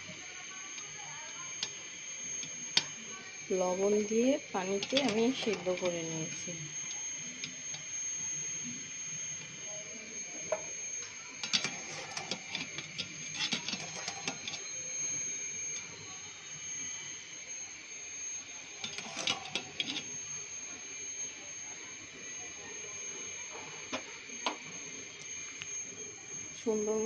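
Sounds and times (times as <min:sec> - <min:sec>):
thin high whine: 0:00.0 - 0:27.0
wire strainer clinking on steel pot: 0:04.7 - 0:06.0.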